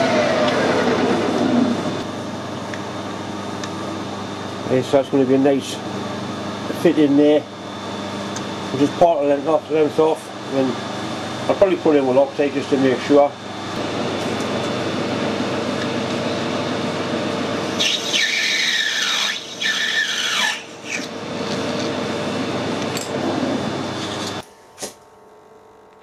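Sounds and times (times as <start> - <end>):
metal lathe running: 0.0 - 2.1, 8.6 - 24.4
cutting tool squealing: 17.7 - 21.1.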